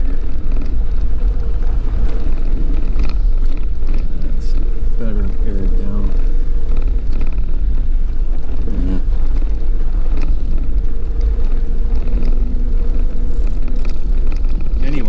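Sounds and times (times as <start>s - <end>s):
constant hum: 0.0s - 15.0s
engine and tyres on gravel: 0.0s - 15.0s.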